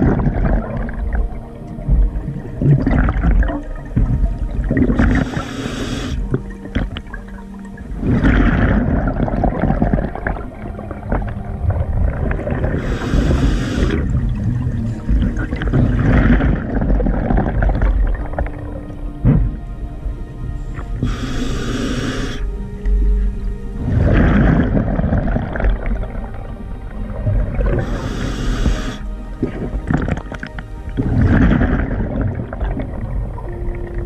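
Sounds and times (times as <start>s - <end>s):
low rumble: 0.0s - 34.0s
bubbling exhale: 4.7s - 6.9s, 8.0s - 10.5s, 12.0s - 17.9s, 20.8s - 22.5s, 27.4s - 30.3s
scuba regulator hissing breath: 5.0s - 6.4s, 12.7s - 14.2s, 20.8s - 22.6s, 27.7s - 29.8s.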